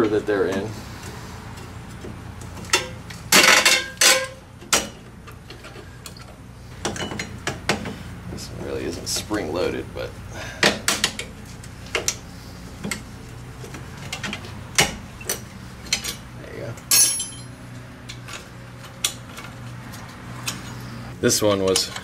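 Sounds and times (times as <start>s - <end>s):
metal clinks of brake tool: 16.9s - 17.6s
ringing metal clank: 16.9s - 17.6s.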